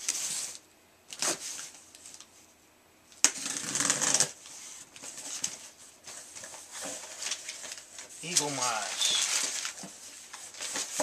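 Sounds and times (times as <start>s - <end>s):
cardboard flaps rustling: 5.0s - 11.0s.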